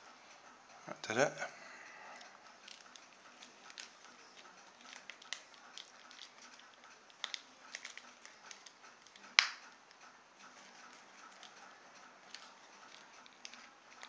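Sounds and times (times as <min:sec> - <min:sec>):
plastic parts clicking: 0:02.2 - 0:10.0, 0:10.8 - 0:14.0.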